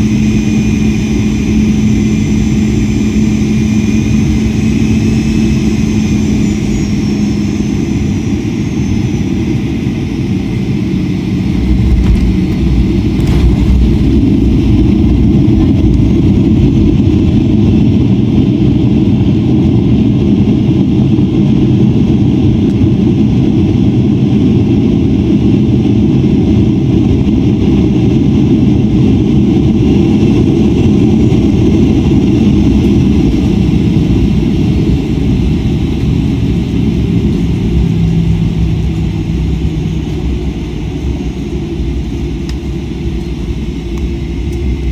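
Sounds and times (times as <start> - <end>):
jet engine whine: 0.0 - 44.9
low rumble of landing roll: 11.4 - 17.7.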